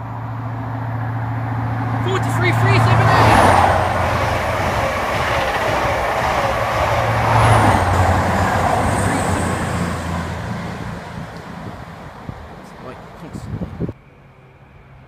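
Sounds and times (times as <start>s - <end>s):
diesel engine drone: 0.0s - 15.0s
train wheels on rails: 1.3s - 13.3s.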